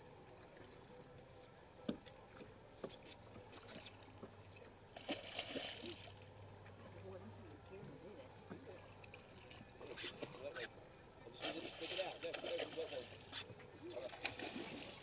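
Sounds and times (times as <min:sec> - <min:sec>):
faint low hum: 0:00.0 - 0:15.0
splashing: 0:04.9 - 0:06.2, 0:11.3 - 0:13.3, 0:14.0 - 0:15.0.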